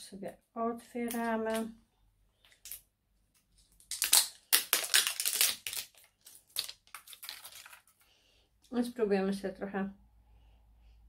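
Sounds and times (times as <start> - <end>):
plastic film crinkling rustles: 3.4 - 8.1.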